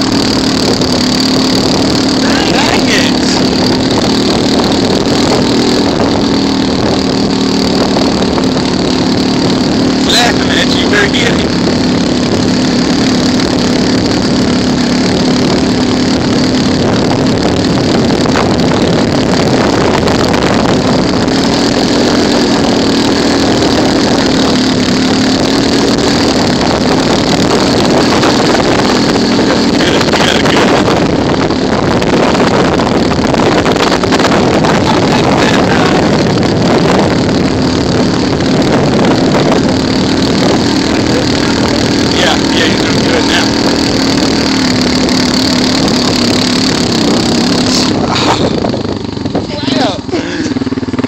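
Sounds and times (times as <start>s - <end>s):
vehicle engine running: 0.0s - 51.0s
wind rushing: 0.0s - 51.0s.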